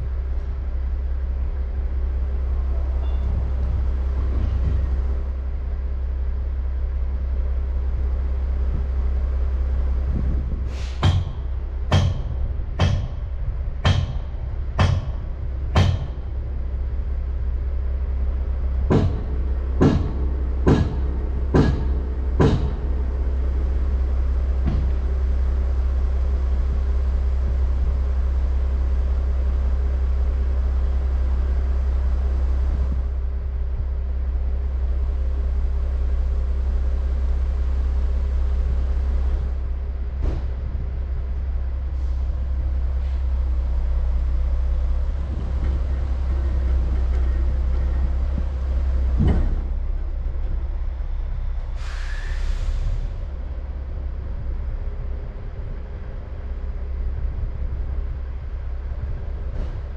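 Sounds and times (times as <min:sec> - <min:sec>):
diesel engine idling: 0:00.0 - 0:59.9
sharp knocks: 0:10.9 - 0:16.4, 0:18.9 - 0:22.9.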